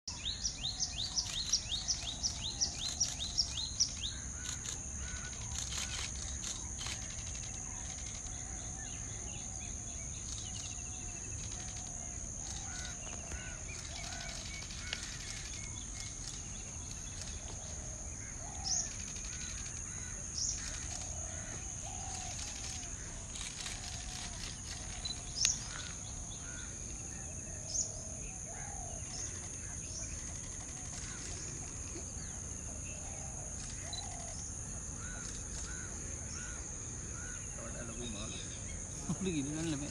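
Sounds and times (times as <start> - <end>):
birds chirping and whistling: 0.1 - 31.6
high-pitched insect drone: 0.1 - 39.9.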